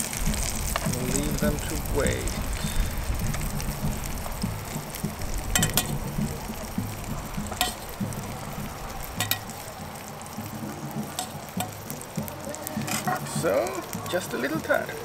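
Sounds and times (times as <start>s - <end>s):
sausages sizzling in a pan: 0.0s - 15.0s
utensil scraping metal frying pan: 2.6s - 9.7s, 11.0s - 13.4s.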